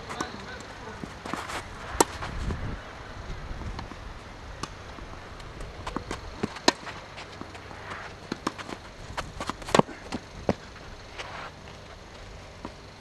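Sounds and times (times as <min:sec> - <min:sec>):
racket striking ball: 0:00.2 - 0:02.3, 0:04.6 - 0:10.7
ball bouncing: 0:04.6 - 0:10.6.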